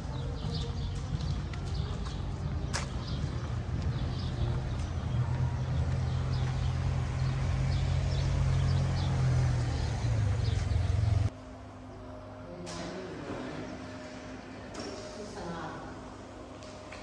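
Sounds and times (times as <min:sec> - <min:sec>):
street traffic engine drone: 0:00.0 - 0:12.4
motor scooter passing: 0:03.0 - 0:11.3.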